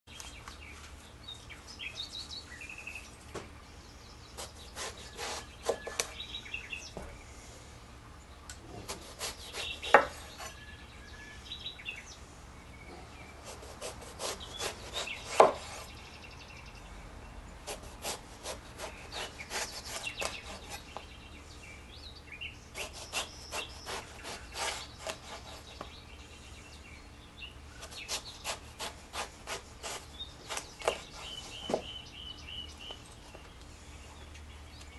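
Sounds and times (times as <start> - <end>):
knife slicing eggplant: 4.4 - 6.2, 8.8 - 10.6, 13.4 - 15.9, 17.7 - 20.8, 22.8 - 25.9, 27.8 - 31.8.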